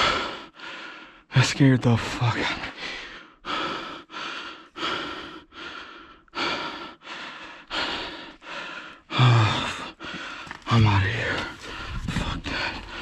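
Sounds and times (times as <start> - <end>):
man gasping: 0.0 - 1.2, 2.7 - 10.7
man panting: 0.0 - 1.3, 2.5 - 10.7, 11.6 - 13.0.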